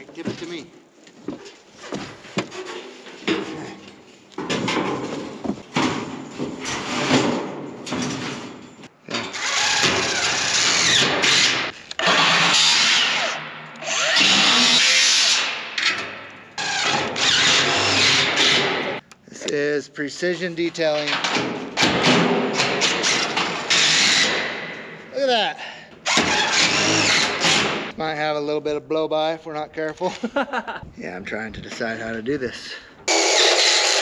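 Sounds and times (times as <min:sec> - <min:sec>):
cordless drill boring into metal: 0:09.3 - 0:15.4, 0:26.1 - 0:27.6.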